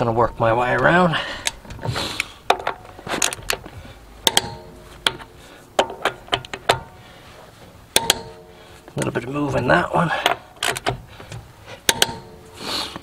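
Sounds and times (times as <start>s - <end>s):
torque wrench metal clicks: 4.2s - 5.2s, 11.8s - 12.3s.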